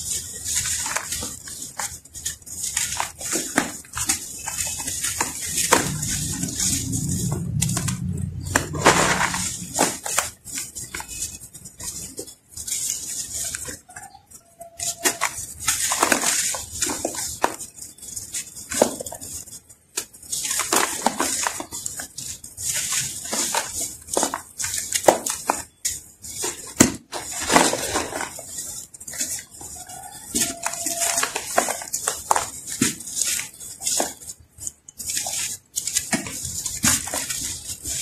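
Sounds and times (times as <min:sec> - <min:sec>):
dry sand clumps crunching: 0:00.0 - 0:38.0
sand sifting through fingers: 0:00.0 - 0:38.0.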